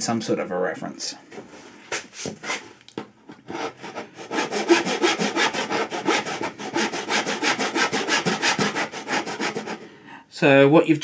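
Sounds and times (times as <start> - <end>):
hand saw cutting wood: 3.4 - 9.8.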